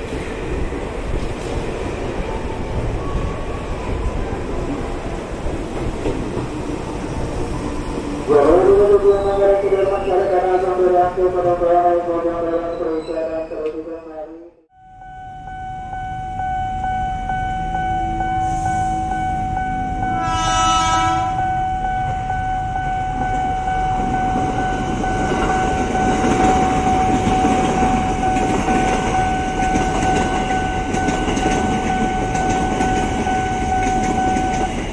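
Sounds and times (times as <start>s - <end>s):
train rumbling past: 0.0s - 13.7s, 14.9s - 34.9s
level crossing warning bell: 14.7s - 34.9s
train horn: 20.1s - 21.6s
wheels clattering on rails: 24.0s - 34.9s.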